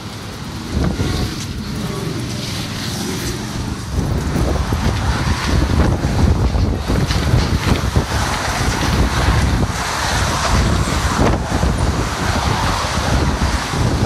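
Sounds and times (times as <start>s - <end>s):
road traffic passing: 0.0s - 14.0s
wind buffeting microphone: 0.0s - 14.0s.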